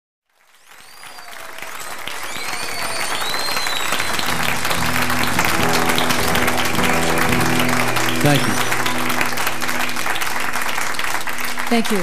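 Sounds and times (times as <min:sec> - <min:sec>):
audience applause and cheering: 0:00.3 - 0:12.0
high gliding whistles: 0:02.1 - 0:04.5.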